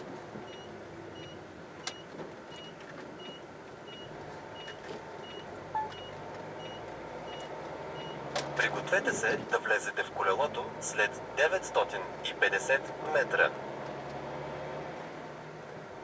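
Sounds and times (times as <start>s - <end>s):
engine and road noise: 0.0s - 16.0s
turn signal beeping: 0.4s - 8.7s.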